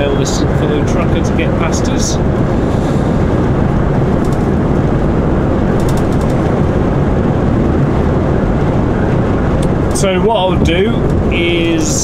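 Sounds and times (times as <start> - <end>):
lorry driving at speed: 0.0 - 12.0.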